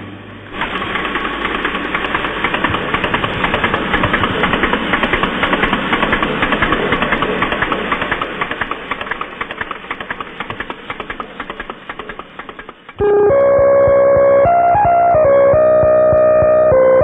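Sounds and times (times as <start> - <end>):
computer room hum: 0.0 - 8.3.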